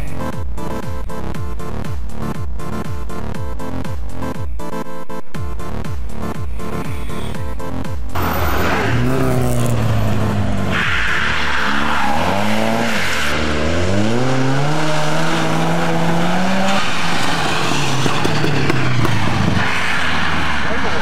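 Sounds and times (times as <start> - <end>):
rally car engines revving: 5.5 - 21.0
tyre noise on road: 8.0 - 21.0.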